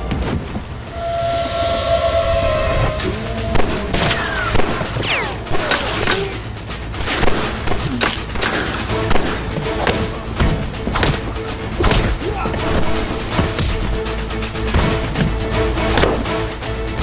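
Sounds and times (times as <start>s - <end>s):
action film score music: 0.0s - 17.0s
loud sharp hits: 2.8s - 14.0s.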